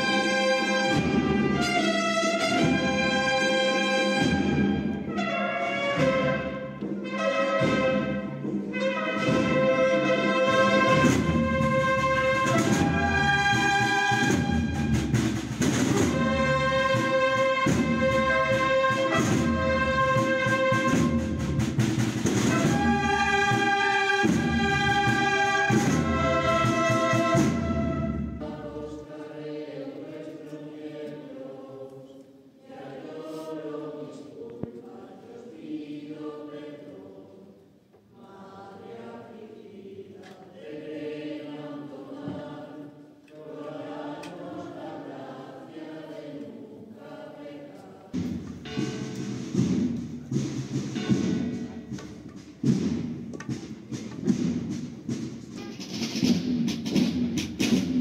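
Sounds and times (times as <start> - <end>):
brass band playing a slow march: 0.0 - 29.3, 48.2 - 58.0
voices singing: 22.6 - 49.1.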